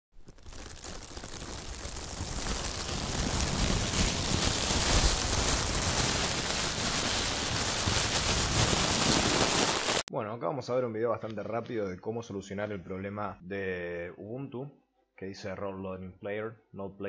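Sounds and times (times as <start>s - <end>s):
crackling rain-like hiss: 0.2s - 10.1s.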